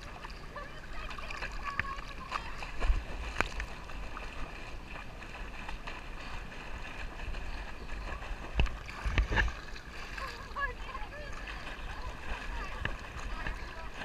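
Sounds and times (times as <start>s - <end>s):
river water sloshing and splashing: 0.0s - 14.0s
sharp splashes or knocks: 1.2s - 10.6s.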